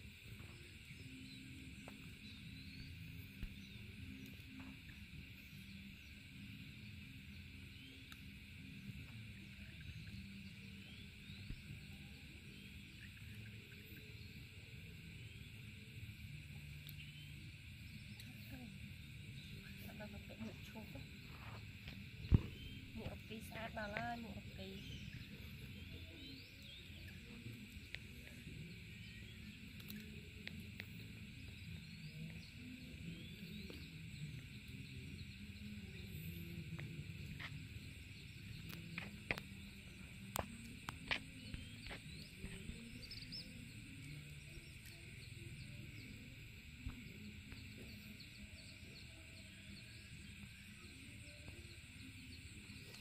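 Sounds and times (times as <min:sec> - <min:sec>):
insect drone: 0:00.0 - 0:53.0
small birds chirping: 0:00.0 - 0:53.0
wind rumble on microphone: 0:20.2 - 0:25.4.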